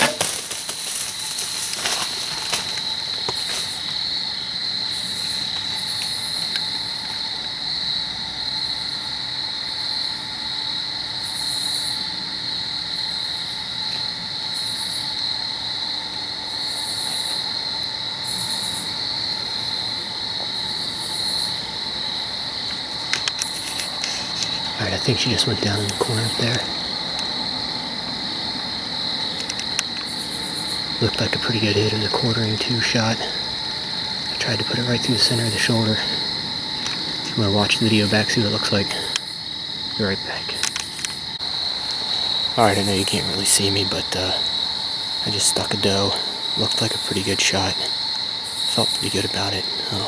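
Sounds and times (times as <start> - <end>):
faint cracks or rustles: 0.0 - 4.0, 22.7 - 24.8, 29.3 - 30.1, 40.5 - 41.2
crickets trilling: 0.0 - 50.0
high-pitched insect call: 0.0 - 50.0.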